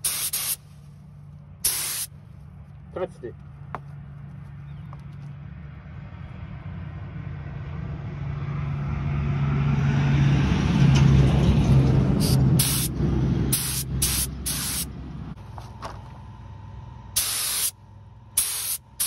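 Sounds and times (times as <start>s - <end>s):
paint spray gun air hiss: 0.0s - 0.7s, 1.6s - 2.1s, 12.2s - 12.9s, 13.5s - 14.9s, 17.2s - 17.8s, 18.4s - 19.0s
low engine-like rumble: 0.0s - 19.0s.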